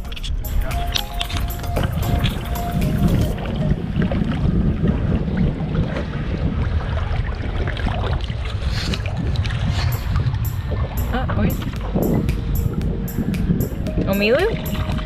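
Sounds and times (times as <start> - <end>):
water lapping against hull: 0.0 - 15.0
wind buffeting microphone: 0.0 - 15.0.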